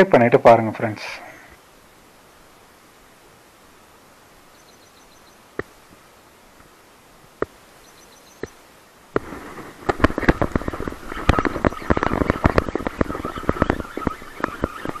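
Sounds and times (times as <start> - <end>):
steady outdoor hiss: 0.0 - 15.0
faint high chirps: 3.8 - 5.5
rustling: 8.4 - 15.0.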